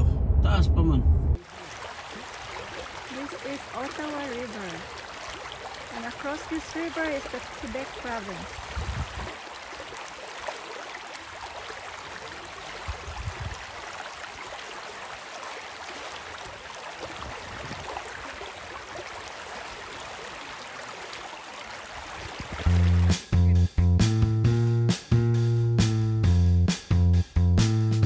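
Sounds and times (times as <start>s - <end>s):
waves lapping against rocks: 1.4s - 23.1s.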